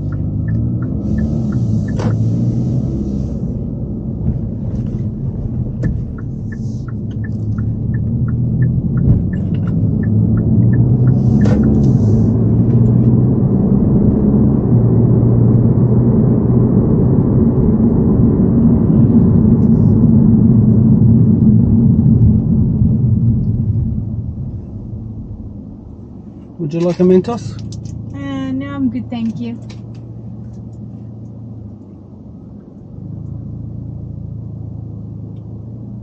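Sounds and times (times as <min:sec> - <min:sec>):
turn signal ticking: 0:00.0 - 0:03.0, 0:05.0 - 0:15.9, 0:26.8 - 0:31.4
car engine and road noise: 0:00.0 - 0:36.0.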